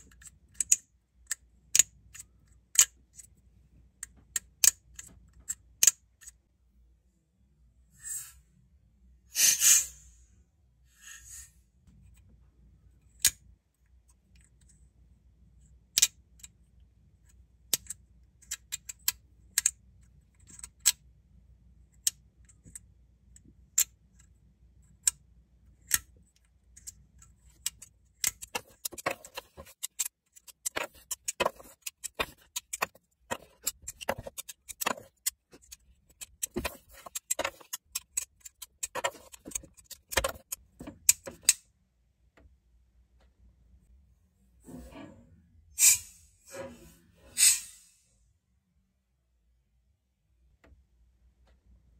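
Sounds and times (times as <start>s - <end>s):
plastic fidget toy clicking: 0.0s - 3.3s.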